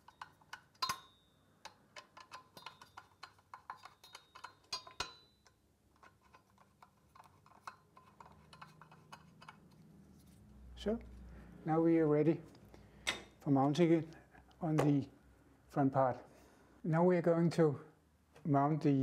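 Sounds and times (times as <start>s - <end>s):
screwdriver clicking on metal: 0.0s - 9.8s.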